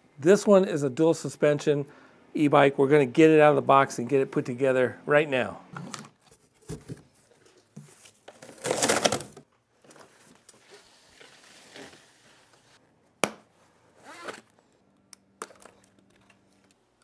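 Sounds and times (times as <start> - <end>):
cardboard and foam rustling: 6.2 - 12.8.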